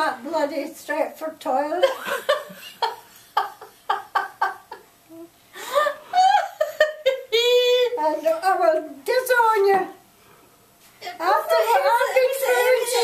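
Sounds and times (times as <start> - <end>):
women laughing: 1.8 - 7.9.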